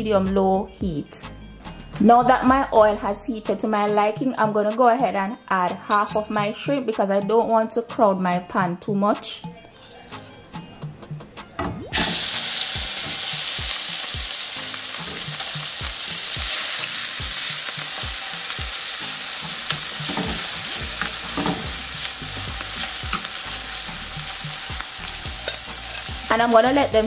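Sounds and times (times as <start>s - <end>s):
utensil pushing food in pan: 11.9s - 26.3s
shrimp sizzling in hot oil: 11.9s - 27.0s.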